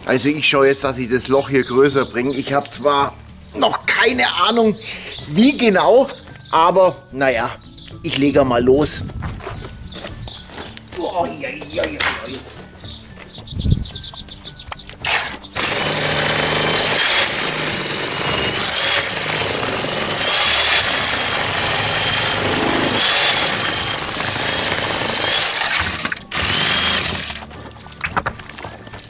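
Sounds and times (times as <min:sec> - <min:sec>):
demolition hammer chiselling masonry: 0:15.1 - 0:27.5.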